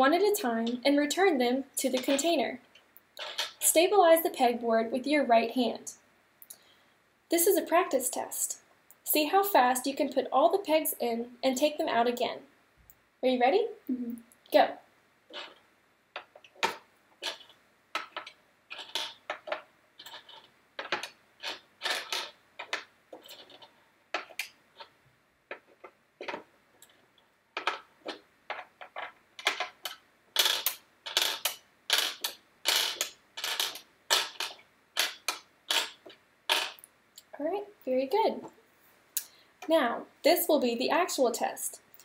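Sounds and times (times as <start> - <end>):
pegs clicking on plastic pegboard: 16.2 - 24.9, 27.6 - 36.9.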